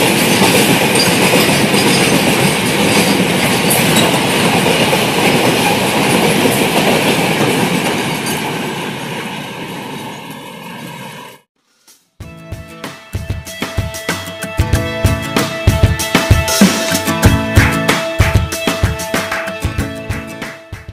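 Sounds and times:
freight train wheels rumbling on rails: 0:00.0 - 0:11.2.

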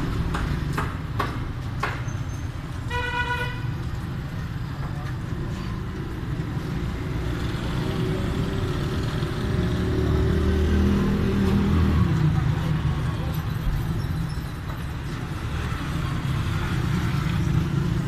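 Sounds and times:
street traffic rumble: 0:00.0 - 0:18.0
vehicle horn toot: 0:02.9 - 0:03.7.

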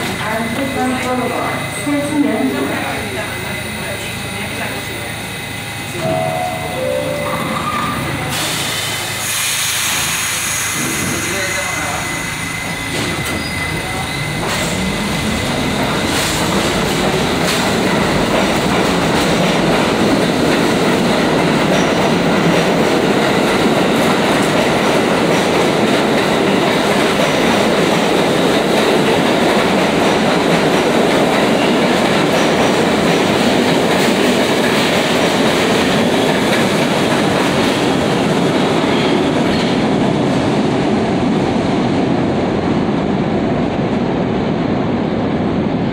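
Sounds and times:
subway train motor whine: 0:00.0 - 0:32.1
subway cars running past: 0:00.0 - 0:45.9.

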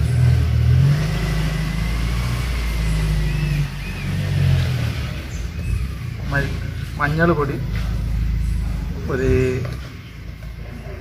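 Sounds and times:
motor engine hum: 0:00.0 - 0:11.0
faint high chirps: 0:02.6 - 0:11.0.

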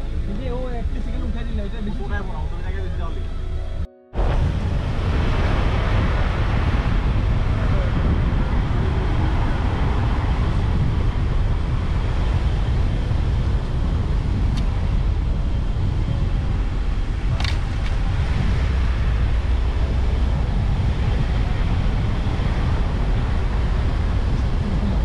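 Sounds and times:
car engine and tyres rumbling: 0:00.0 - 0:25.0
brief click: 0:17.4 - 0:17.6.

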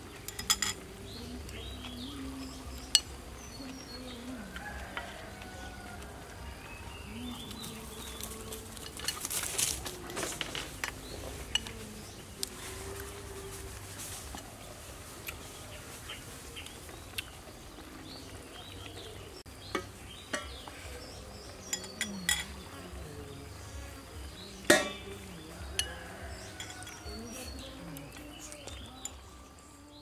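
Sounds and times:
utensils clinking on bowls: 0:00.1 - 0:00.9, 0:07.6 - 0:11.9, 0:21.6 - 0:22.8, 0:24.7 - 0:29.3
insects buzzing: 0:15.3 - 0:30.0.

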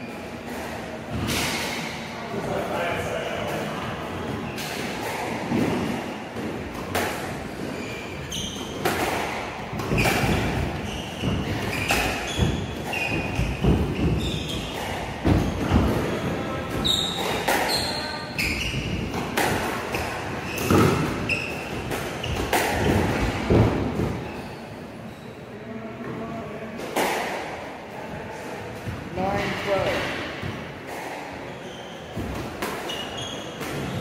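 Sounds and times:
shoes squeaking on wooden floor: 0:07.5 - 0:25.4, 0:31.4 - 0:34.0
squash ball hits: 0:08.7 - 0:17.9, 0:18.5 - 0:24.2.

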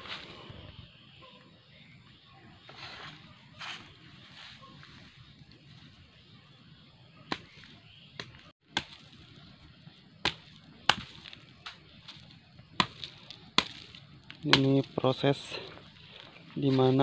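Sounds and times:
machete chopping: 0:07.3 - 0:09.3, 0:10.2 - 0:14.9.

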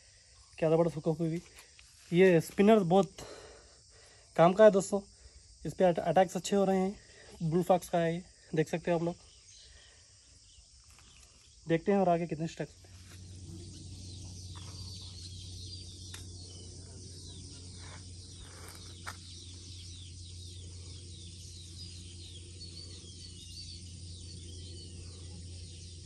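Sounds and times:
birds chirping: 0:05.8 - 0:26.0
steady low hum: 0:12.2 - 0:26.0.

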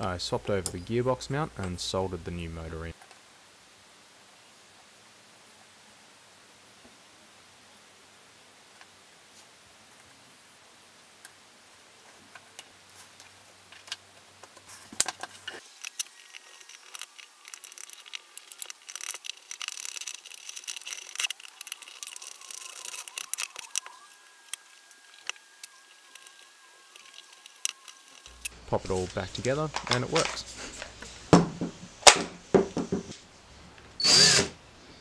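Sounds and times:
screwdriver driving screws: 0:34.0 - 0:34.6.

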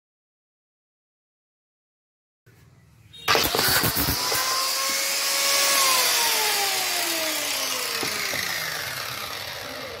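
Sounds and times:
angle grinder spinning down: 0:03.3 - 0:10.0.

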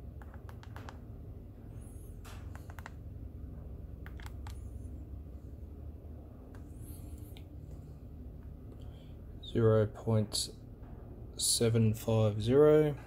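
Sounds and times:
steady low hum: 0:00.0 - 0:13.0
calculator key clicks: 0:02.5 - 0:03.0, 0:04.0 - 0:04.6.

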